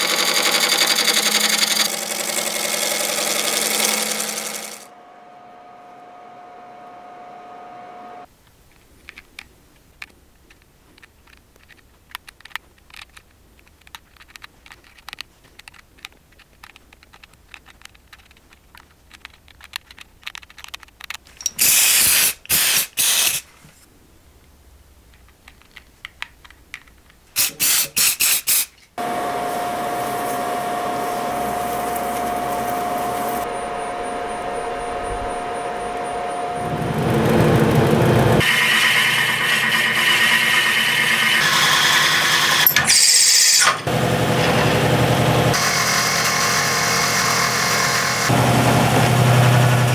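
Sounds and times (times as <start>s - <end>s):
wood lathe whining: 0.0s - 8.3s, 29.0s - 49.9s
aerosol spray bursts: 21.6s - 23.4s.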